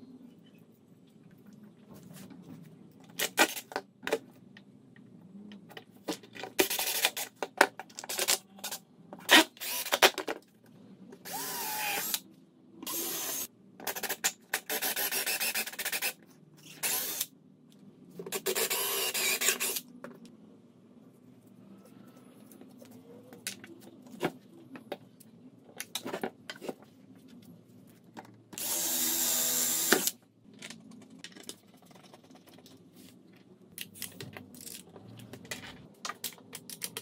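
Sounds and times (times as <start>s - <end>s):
cordless drill driving screws: 9.6s - 10.0s, 16.7s - 17.3s, 28.6s - 30.1s.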